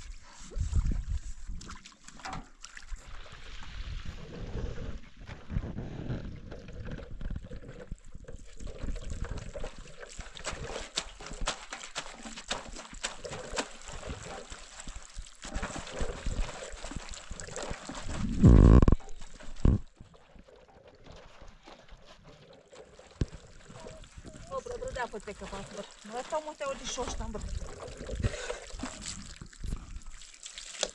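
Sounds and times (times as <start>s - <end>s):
hands splashing water in basin: 8.8s - 19.8s, 23.0s - 30.9s.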